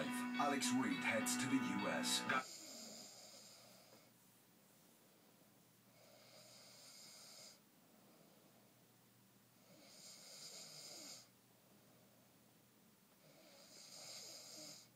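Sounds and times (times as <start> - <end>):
man snoring faintly: 2.3 - 4.1, 5.9 - 8.5, 9.6 - 11.3, 13.2 - 14.9.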